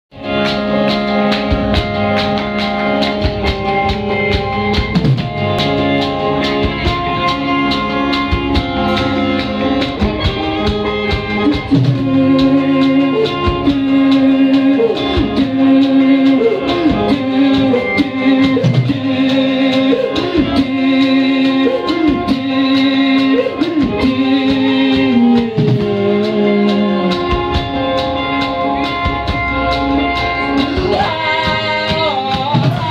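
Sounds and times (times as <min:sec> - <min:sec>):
drum kit beat: 0:00.1 - 0:32.9
guitar and keyboard held notes: 0:00.1 - 0:32.9.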